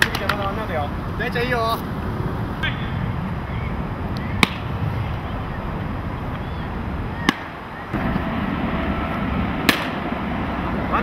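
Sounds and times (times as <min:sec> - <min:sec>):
distant traffic hiss: 0:00.0 - 0:11.0
wind: 0:00.0 - 0:11.0
baseball smacking bat or mitt: 0:04.4 - 0:04.7, 0:07.2 - 0:07.6, 0:09.6 - 0:10.0.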